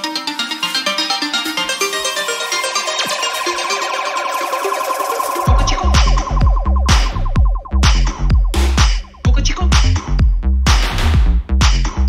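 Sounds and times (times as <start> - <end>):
electronic synthesizer music: 0.0 - 9.4.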